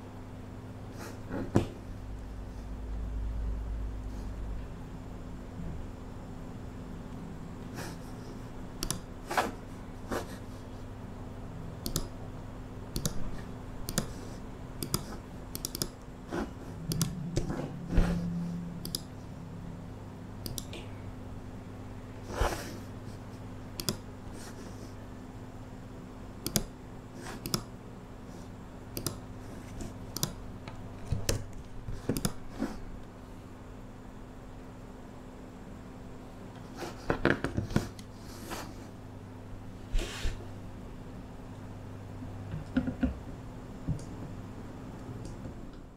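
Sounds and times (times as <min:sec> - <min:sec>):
mouse and keyboard clicks: 0:08.8 - 0:09.1, 0:11.8 - 0:12.2, 0:12.9 - 0:13.2, 0:13.8 - 0:14.2, 0:14.8 - 0:16.0, 0:16.9 - 0:17.5, 0:23.8 - 0:24.0, 0:26.4 - 0:26.7, 0:27.4 - 0:27.7, 0:29.0 - 0:29.2, 0:31.0 - 0:32.4
low hum: 0:11.3 - 0:22.1.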